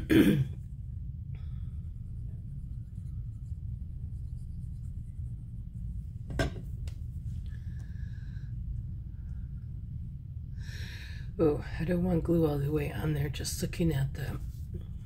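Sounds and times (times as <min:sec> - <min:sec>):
throat clearing: 0:00.0 - 0:00.6
low hum: 0:00.0 - 0:15.0.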